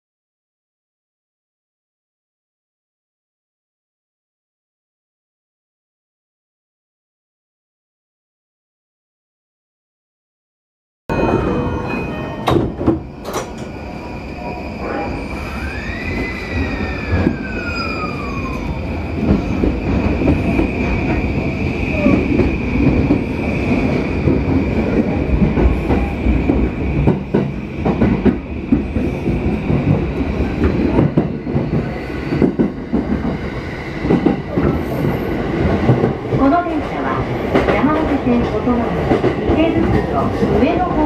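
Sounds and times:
train wheels rumbling on rails: 0:11.1 - 0:41.0.

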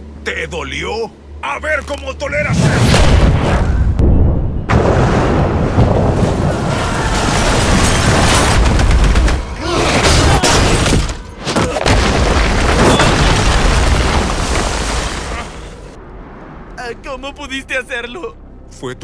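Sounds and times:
rumbling crashes of debris: 0:02.6 - 0:16.0.

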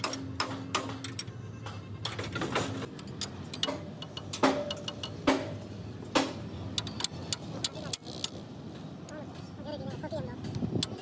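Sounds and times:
hammer striking steel: 0:00.0 - 0:01.8, 0:02.6 - 0:07.8
metallic clinks and taps: 0:02.9 - 0:05.5.

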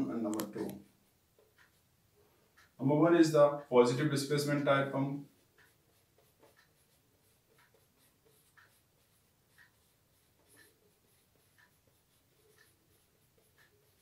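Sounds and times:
soft ticking: 0:00.0 - 0:14.0
marker pen squeaking on whiteboard: 0:05.3 - 0:14.0.

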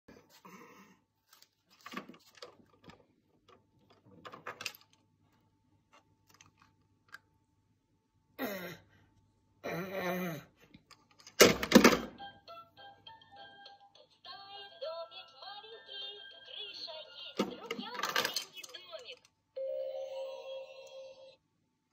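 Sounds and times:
plastic toy keys rattling: 0:17.4 - 0:19.3.

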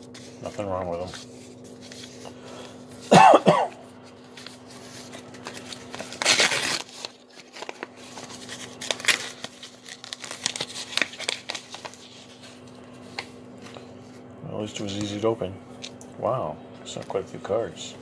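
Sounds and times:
paper rustling and crinkling: 0:00.0 - 0:03.2, 0:03.9 - 0:14.2
faint steady hum: 0:00.0 - 0:18.0
paper envelope tearing: 0:04.2 - 0:13.3.

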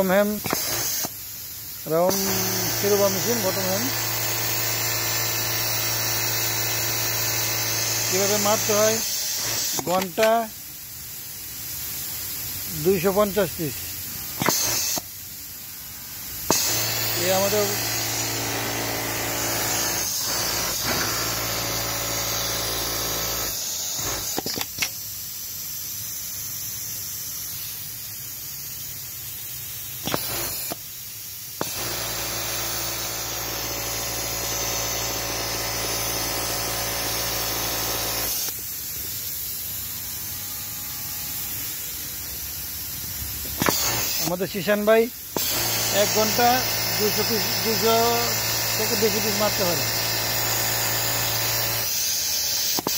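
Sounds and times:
factory floor hiss and hum: 0:00.0 - 0:52.9
sewing machine stitching: 0:16.5 - 0:24.4, 0:45.4 - 0:52.0.

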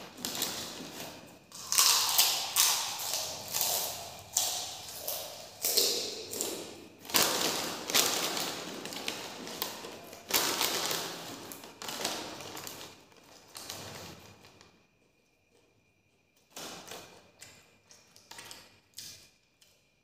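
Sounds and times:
crunchy snack chewing: 0:01.5 - 0:10.9.

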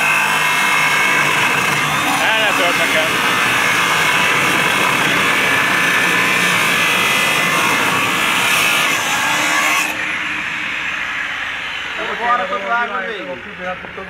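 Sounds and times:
angle grinder grinding steel: 0:00.0 - 0:13.3.

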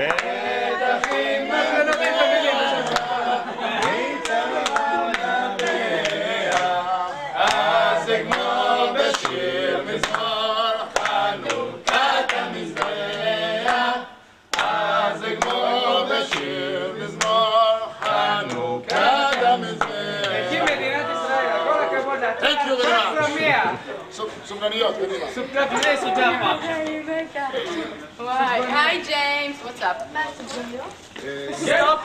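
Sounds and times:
hand claps: 0:00.0 - 0:00.4, 0:01.0 - 0:01.3, 0:02.8 - 0:03.1, 0:03.8 - 0:06.8, 0:07.4 - 0:08.5, 0:09.1 - 0:09.4, 0:10.0 - 0:10.3, 0:10.9 - 0:13.8, 0:14.5 - 0:14.8, 0:15.4 - 0:15.6, 0:16.3 - 0:16.5, 0:17.2 - 0:17.4, 0:18.0 - 0:20.8
group singing unaccompanied: 0:00.0 - 0:23.9, 0:31.2 - 0:32.0.

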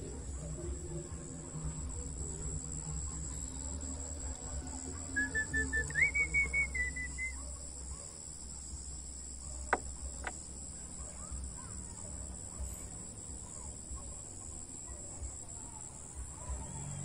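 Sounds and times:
crickets chirping: 0:00.0 - 0:17.0
faint bird chirps: 0:03.0 - 0:08.1.

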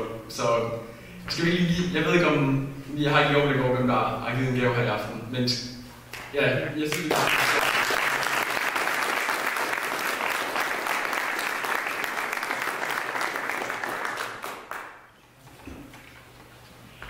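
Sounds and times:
audience applauding: 0:06.9 - 0:15.1.

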